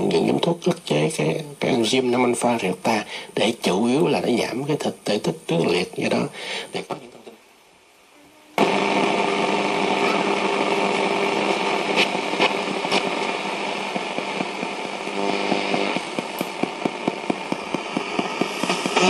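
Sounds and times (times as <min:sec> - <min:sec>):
interference whine: 0:00.0 - 0:19.0
radio static hiss: 0:00.0 - 0:19.0
crackling clicks of tuning: 0:08.6 - 0:19.0.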